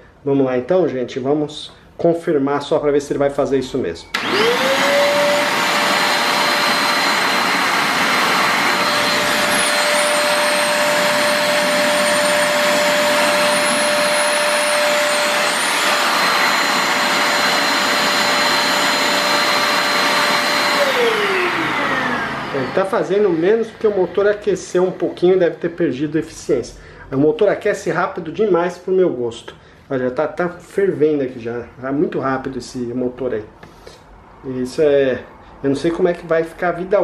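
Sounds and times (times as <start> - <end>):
vacuum cleaner motor whine: 4.1 - 25.6.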